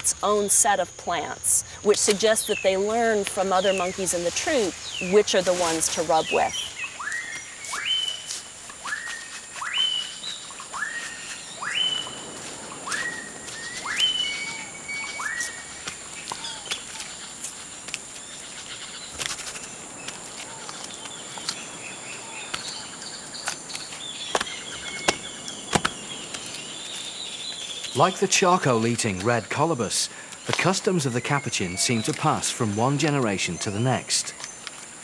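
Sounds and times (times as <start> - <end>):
bird calling with rising whistles: 6.2 - 17.3, 20.4 - 28.0.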